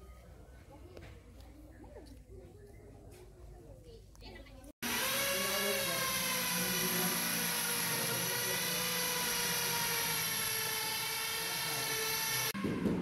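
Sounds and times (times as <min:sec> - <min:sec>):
whining motor hum: 0:04.8 - 0:13.0.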